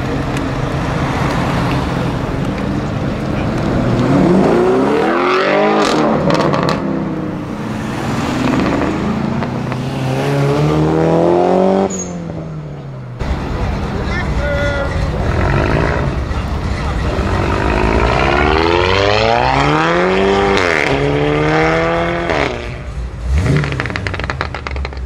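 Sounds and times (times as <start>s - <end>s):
car engine accelerating hard: 0.0s - 11.9s, 15.1s - 24.9s
sharp exhaust cracks: 23.4s - 25.0s.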